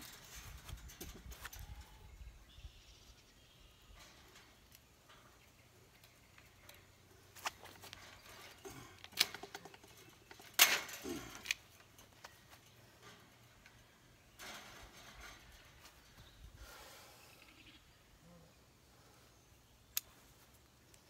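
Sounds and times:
chain-link panel clattering: 0:00.0 - 0:02.0, 0:06.3 - 0:16.4
pliers and wire clicking on mesh: 0:05.9 - 0:13.8, 0:19.9 - 0:20.2.

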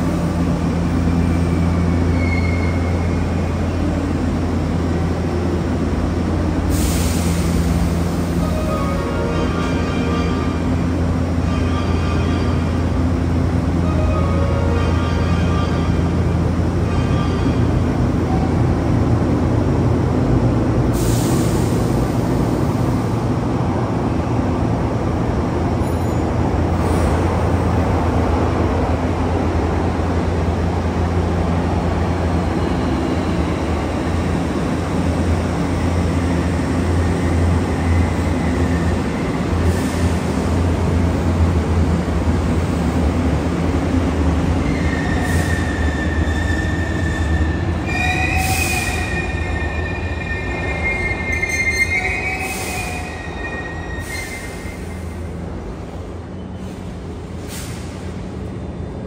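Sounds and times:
electric train rumbling: 0:00.0 - 0:59.0
wheel squeal: 0:01.8 - 0:03.1, 0:44.6 - 0:55.0.

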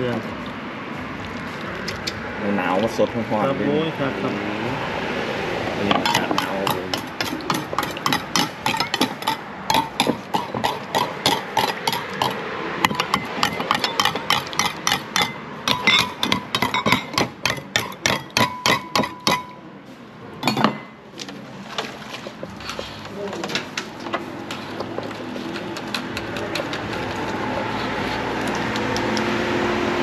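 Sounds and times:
metal utensils tapping pots: 0:05.8 - 0:19.6, 0:20.4 - 0:21.0.

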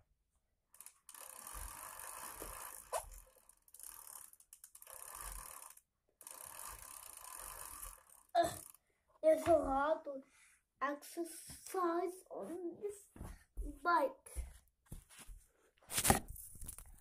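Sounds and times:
bicycle chain and wheel whirring: 0:00.7 - 0:08.9.

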